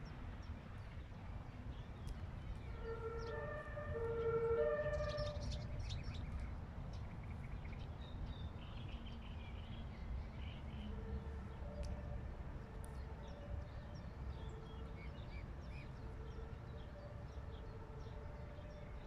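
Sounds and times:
two-tone siren: 0:02.6 - 0:05.8, 0:15.8 - 0:19.0.

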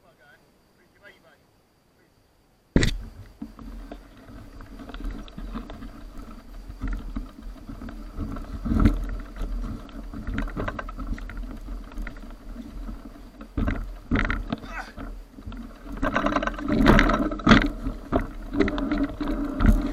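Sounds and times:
bike rattling and knocking: 0:02.8 - 0:19.9
bike tyres on dirt: 0:02.8 - 0:19.9
hard jolt of bike: 0:02.8 - 0:19.9.

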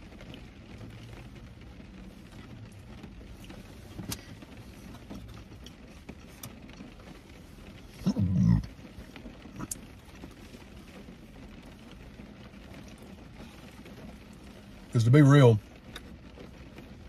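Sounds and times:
car cabin hum: 0:00.0 - 0:17.0
short low vocal sound: 0:08.0 - 0:08.7.

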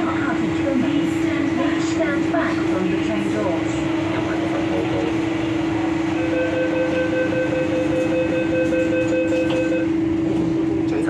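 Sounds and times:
train humming: 0:00.0 - 0:11.0
door-closing warning beeps: 0:06.2 - 0:10.0.

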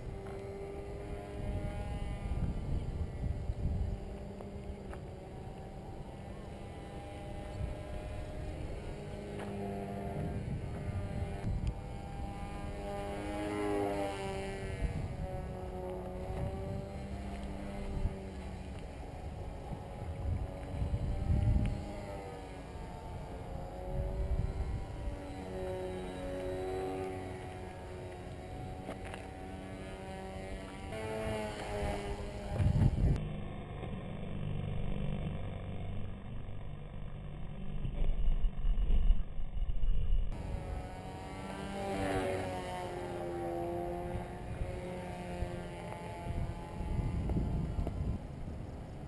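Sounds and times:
wind rumbling on microphone: 0:00.0 - 0:33.3, 0:34.8 - 0:49.0
electric motor and propeller buzzing: 0:00.0 - 0:49.0.

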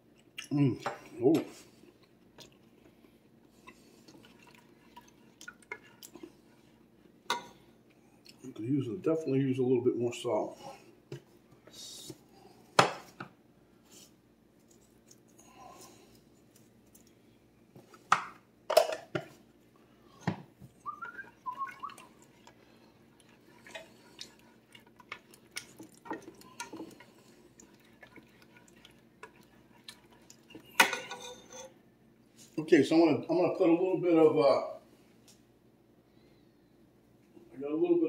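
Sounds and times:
metal spoon stirring thick soup: 0:03.6 - 0:07.5, 0:20.9 - 0:31.8.

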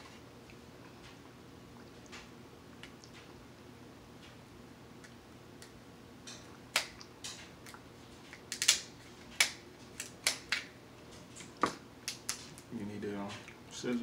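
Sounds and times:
crab shells cracking by hand: 0:05.6 - 0:10.8, 0:11.4 - 0:12.7.

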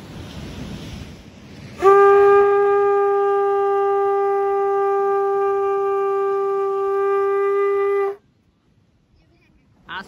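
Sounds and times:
conch shell trumpet note: 0:01.8 - 0:08.2.

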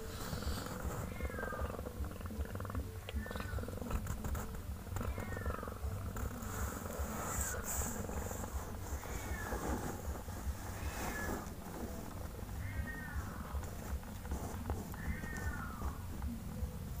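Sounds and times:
cat purring: 0:00.0 - 0:17.0
faint high kitten squeaks: 0:00.2 - 0:16.1.

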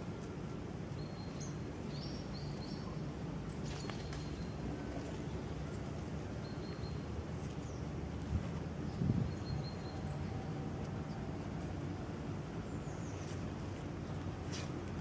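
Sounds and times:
low outdoor background rumble: 0:00.0 - 0:15.0.

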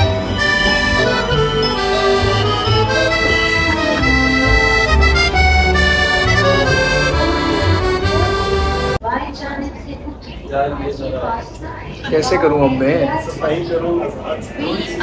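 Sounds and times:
background music with bass line: 0:00.0 - 0:09.0.

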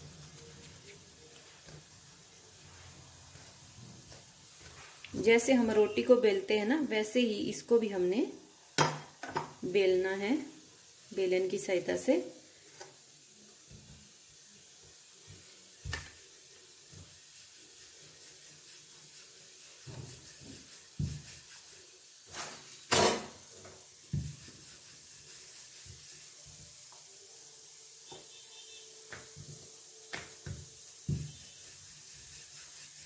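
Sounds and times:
rolling pin rubbing on dough: 0:00.0 - 0:06.0, 0:15.1 - 0:22.9, 0:23.5 - 0:26.8, 0:30.4 - 0:33.0.

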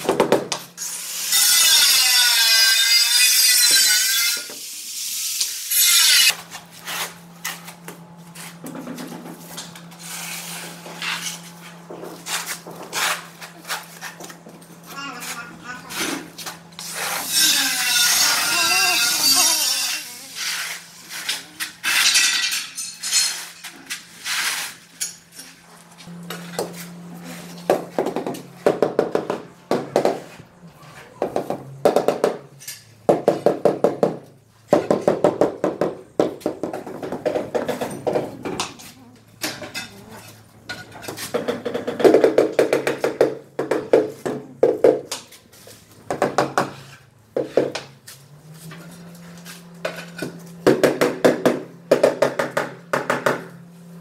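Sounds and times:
steel trowel scraping: 0:00.8 - 0:08.6, 0:09.6 - 0:25.6.

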